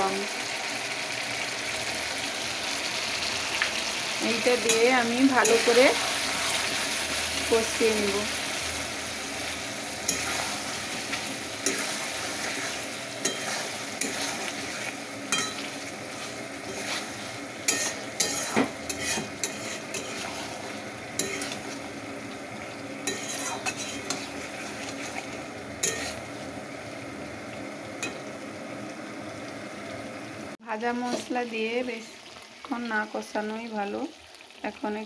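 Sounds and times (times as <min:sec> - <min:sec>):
food sizzling in a pan: 0:00.0 - 0:35.0
spatula scraping a pan: 0:09.3 - 0:21.9, 0:23.0 - 0:26.3.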